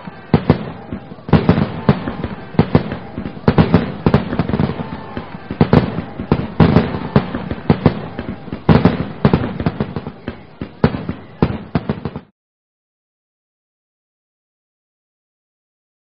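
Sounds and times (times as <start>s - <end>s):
fireworks banging and crackling: 0.0s - 12.3s.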